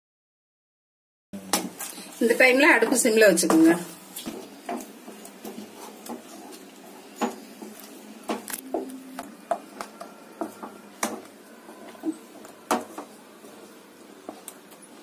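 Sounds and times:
wooden spatula scraping metal pan: 0:01.9 - 0:09.0.

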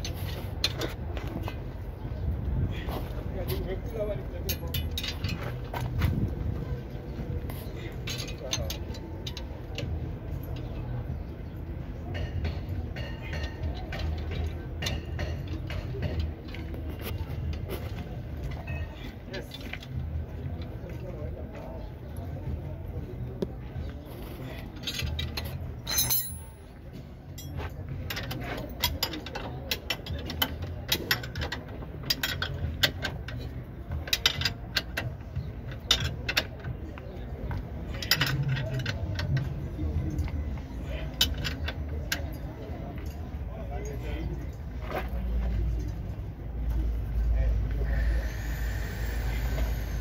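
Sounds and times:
metallic clinks of hand tools: 0:24.8 - 0:27.6
metallic tool clicks and clinks: 0:24.8 - 0:32.6
steady low hum: 0:46.3 - 0:50.0.

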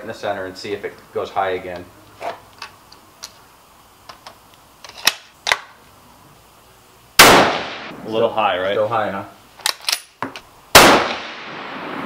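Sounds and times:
rifle handling clicks: 0:04.1 - 0:05.7, 0:09.6 - 0:10.5
rifle shot: 0:07.2 - 0:08.0, 0:10.7 - 0:12.0.

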